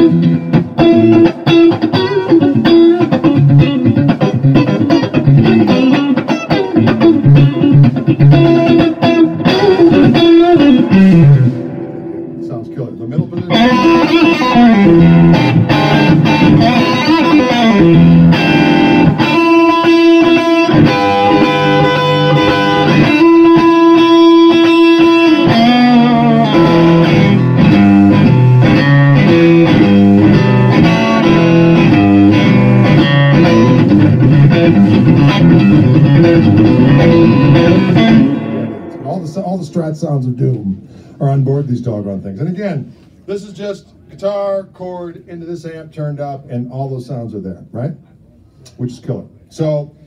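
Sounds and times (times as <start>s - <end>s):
loud electric guitar through amp: 0.0s - 40.0s.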